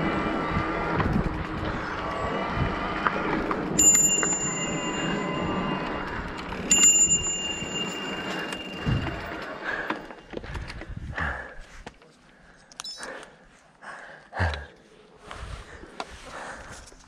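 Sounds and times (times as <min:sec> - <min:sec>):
bicycle bell ringing: 0:03.7 - 0:10.3.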